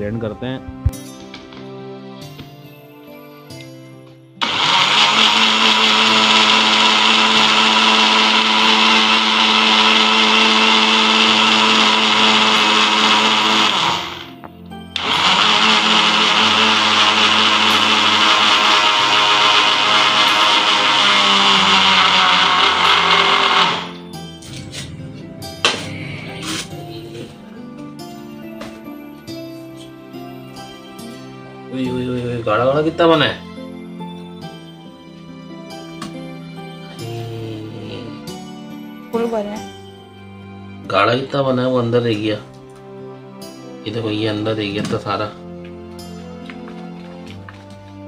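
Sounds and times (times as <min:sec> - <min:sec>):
electric blender running: 0:04.4 - 0:24.1.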